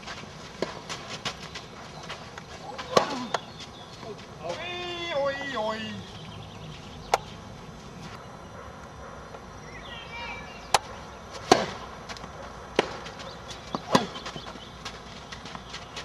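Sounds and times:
tennis ball hit and bouncing: 0:10.7 - 0:14.5.

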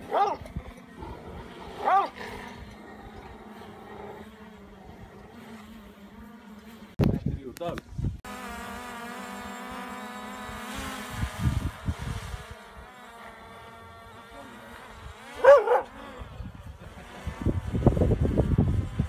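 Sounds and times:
dog barking: 0:00.0 - 0:00.4, 0:01.8 - 0:02.2, 0:15.4 - 0:15.9
drone propellers buzzing: 0:00.0 - 0:07.0, 0:08.3 - 0:19.0.

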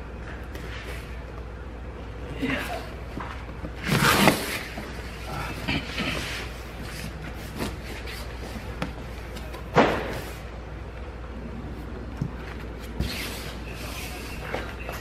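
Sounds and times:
rustles and scrapes: 0:03.7 - 0:09.5.

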